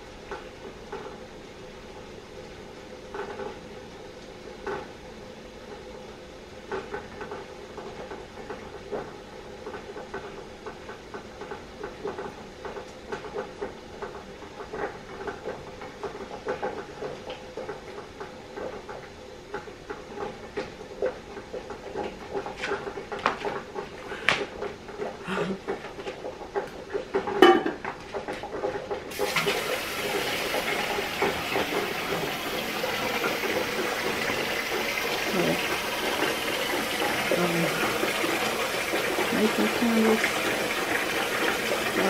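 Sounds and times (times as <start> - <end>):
knocks and clinks: 27.4 - 27.8.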